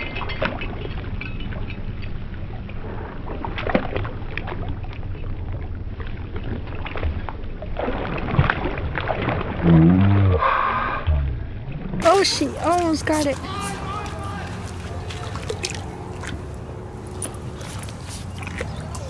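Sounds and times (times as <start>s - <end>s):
creek water splashing: 3.3s - 10.4s, 12.0s - 19.0s
steady low rumble: 9.6s - 19.0s
small sharp splashes: 12.0s - 19.0s.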